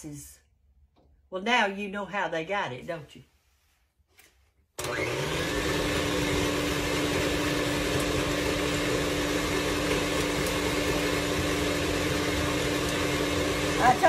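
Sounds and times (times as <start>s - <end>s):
electric mixer humming: 4.8s - 14.0s.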